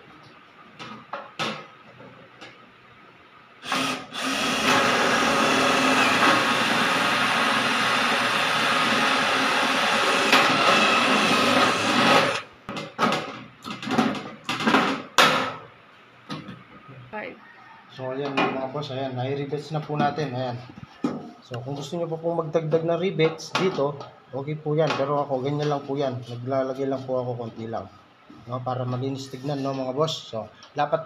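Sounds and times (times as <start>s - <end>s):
cordless drill drilling sheet metal: 3.6s - 12.5s.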